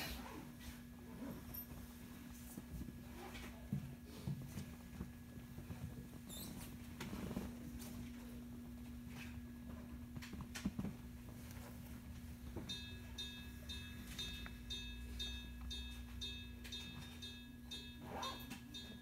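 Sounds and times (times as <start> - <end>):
electric railcar hum: 12.4 - 19.0
bell dinging rapidly: 12.7 - 19.0.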